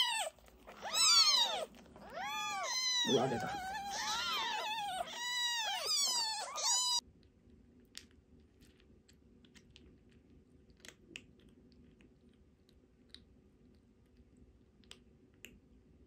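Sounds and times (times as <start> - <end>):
kitten mewing high-pitched: 0.0 - 7.0
kitten chewing dry kibble: 0.0 - 15.7.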